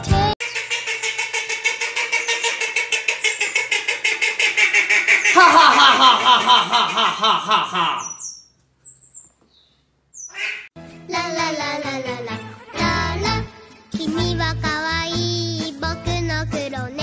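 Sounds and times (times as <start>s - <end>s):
duck quacking: 0.4s - 8.2s, 10.3s - 10.7s.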